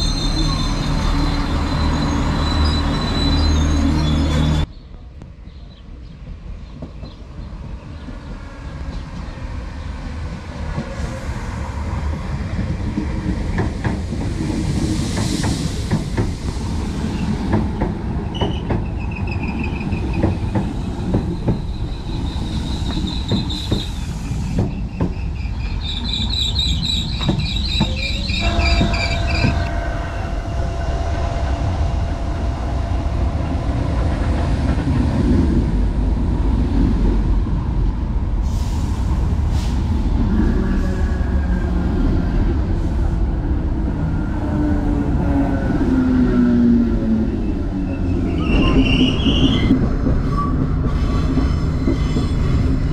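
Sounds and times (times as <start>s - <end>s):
train brakes squealing: 0.0s - 4.7s, 18.3s - 34.2s, 47.4s - 52.6s
low train rumble: 0.0s - 52.9s
train wheels clicking over joints: 12.0s - 29.7s, 48.2s - 52.9s.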